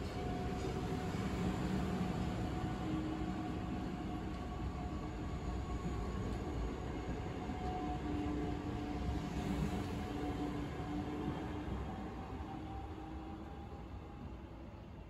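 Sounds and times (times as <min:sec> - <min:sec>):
train wheel and rail noise: 0:00.0 - 0:15.0.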